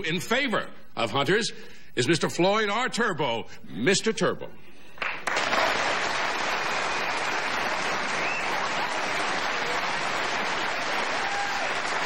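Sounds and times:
audience applauding: 5.0s - 12.0s.

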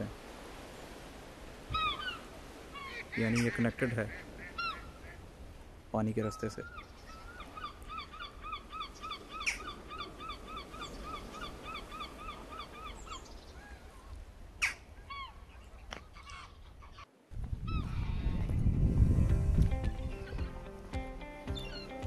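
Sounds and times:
wind rumbling on microphone: 0.0s - 20.8s
music: 19.1s - 22.0s.

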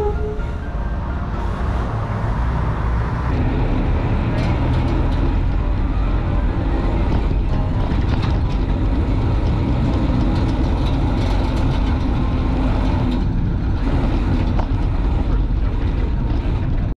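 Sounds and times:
road and wind rumble: 0.0s - 16.9s.

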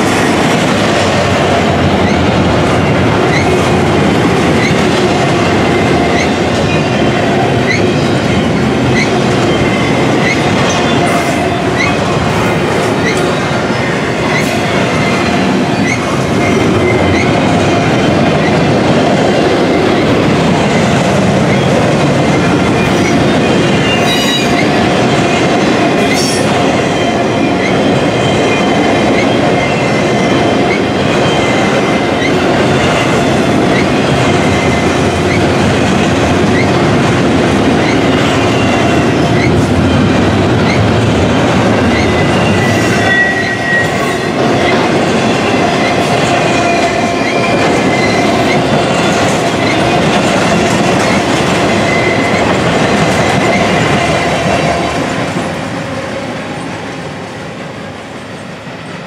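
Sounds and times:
train wheels rumbling on rails: 0.0s - 59.0s
high wheel squeal: 22.8s - 24.8s, 41.9s - 44.8s.

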